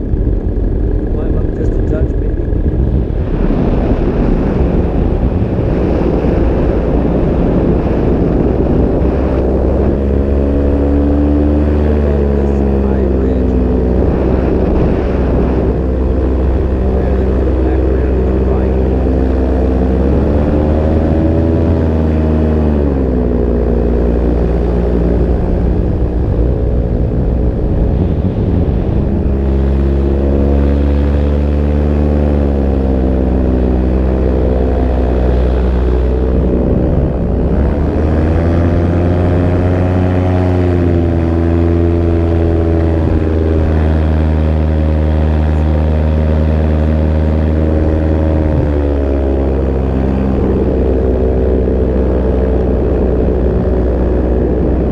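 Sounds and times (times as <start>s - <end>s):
paramotor engine and propeller: 0.0s - 54.9s.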